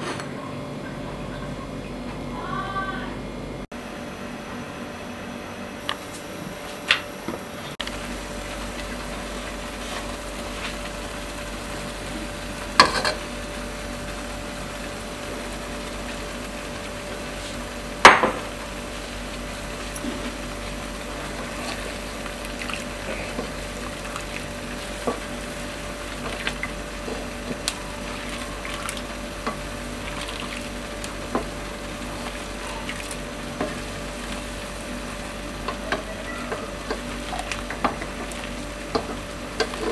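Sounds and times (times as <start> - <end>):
broth simmering and bubbling: 0.3 - 39.9
knocks against metal pot: 18.0 - 18.4
ladle stirring noodles: 18.7 - 39.9.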